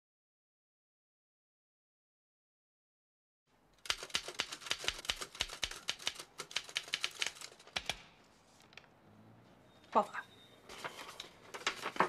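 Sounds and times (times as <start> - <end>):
fast typewriter typing: 3.8 - 8.0.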